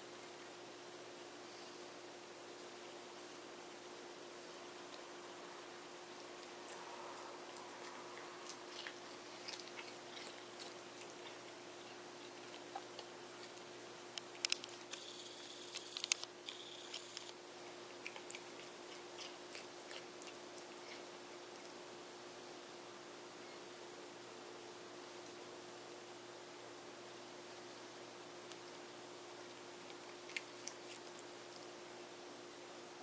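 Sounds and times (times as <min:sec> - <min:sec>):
cat chewing and crunching: 0:02.5 - 0:22.1, 0:27.6 - 0:32.5.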